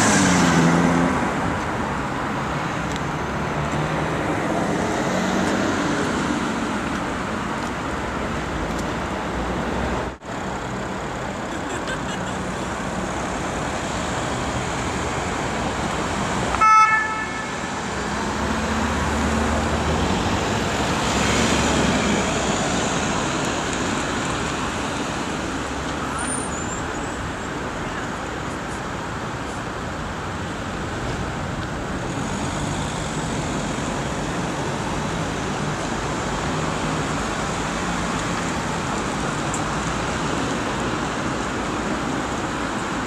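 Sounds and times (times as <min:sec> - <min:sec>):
city traffic noise: 0:00.0 - 0:43.0
vehicle horn toot: 0:16.6 - 0:17.7.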